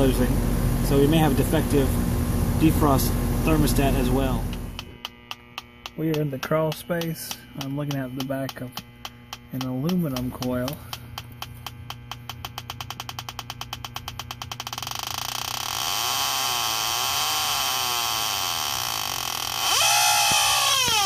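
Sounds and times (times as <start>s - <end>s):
leak detector ticking: 4.5s - 21.0s
warbling alarm: 12.0s - 21.0s.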